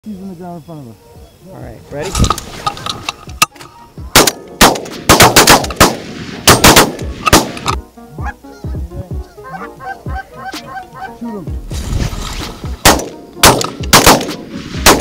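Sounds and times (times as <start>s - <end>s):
geese honking: 2.6s - 4.2s, 7.5s - 11.6s
shotgun shots: 4.1s - 7.8s, 12.3s - 15.0s.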